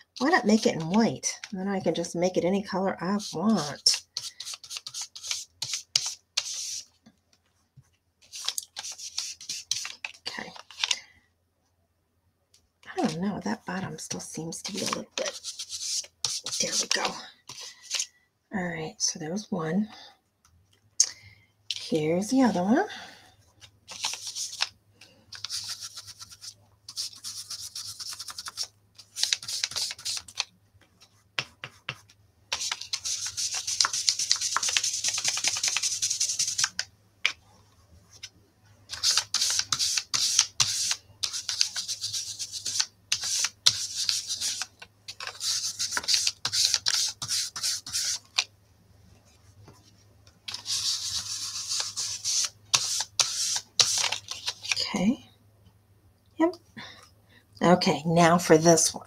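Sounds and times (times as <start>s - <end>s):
foam brush rubbing on cardstock: 31.8s - 36.7s, 39.0s - 48.4s, 50.5s - 54.1s.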